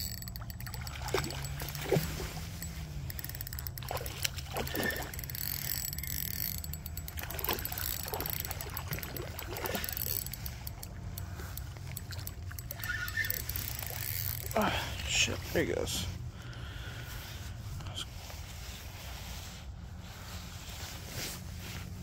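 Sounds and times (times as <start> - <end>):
fish splashing in water: 0.0 - 2.6, 3.4 - 5.3, 7.1 - 14.6.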